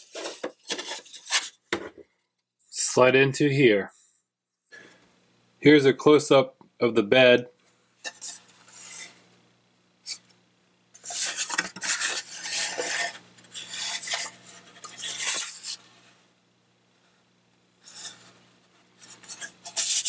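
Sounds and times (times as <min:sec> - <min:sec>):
plastic scraping and rattling: 0:00.0 - 0:02.0, 0:11.0 - 0:15.9.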